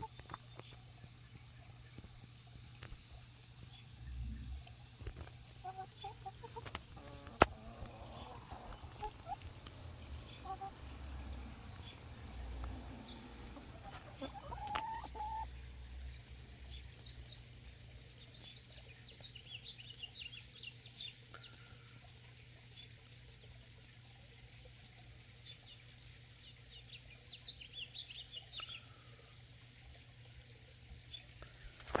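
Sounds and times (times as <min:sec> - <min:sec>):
hens clucking softly: 0:04.4 - 0:19.2.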